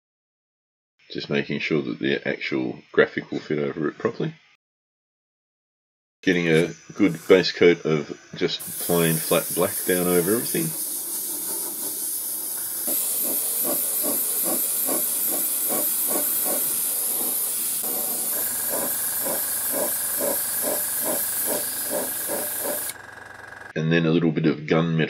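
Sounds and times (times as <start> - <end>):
airbrush air hiss: 6.3 - 23.0.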